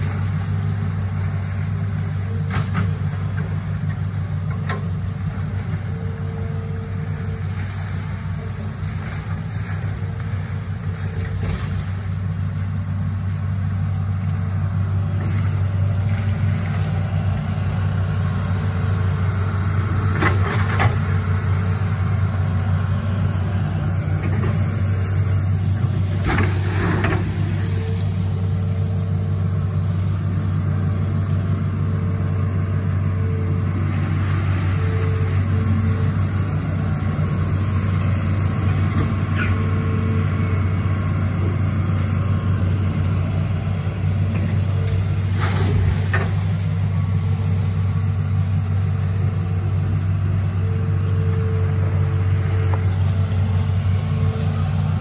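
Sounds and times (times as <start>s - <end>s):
excavator diesel engine running: 0.0s - 55.0s.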